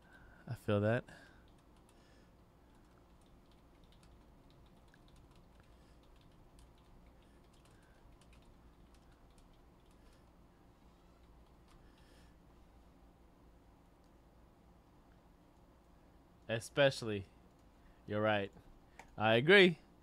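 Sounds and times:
low steady hum: 0.0s - 20.0s
keyboard typing: 1.2s - 10.4s.

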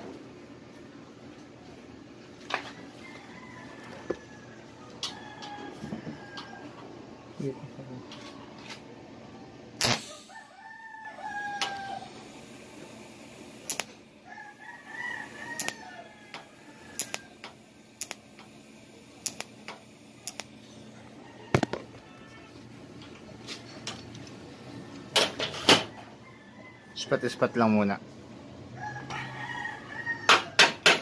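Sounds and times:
welding arc start clicks: 9.8s - 10.4s, 11.6s - 12.8s, 13.4s - 14.0s, 15.3s - 20.6s.

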